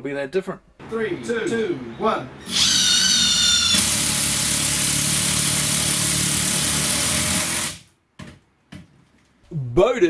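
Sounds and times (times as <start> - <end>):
impact driver hammering: 3.6 - 7.8.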